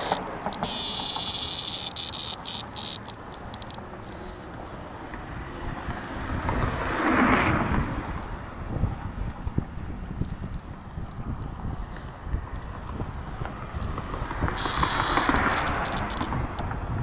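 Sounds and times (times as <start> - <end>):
cicada buzzing: 0.0 - 4.4, 14.4 - 16.6.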